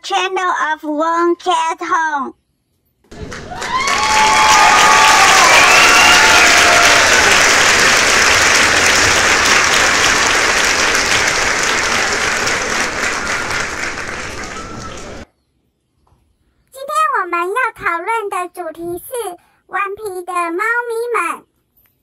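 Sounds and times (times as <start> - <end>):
dense steady clapping: 3.1 - 15.2.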